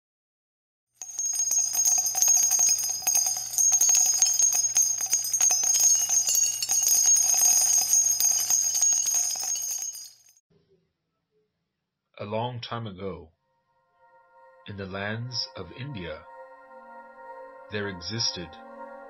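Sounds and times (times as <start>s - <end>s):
small bells jingling: 1.0s - 10.4s.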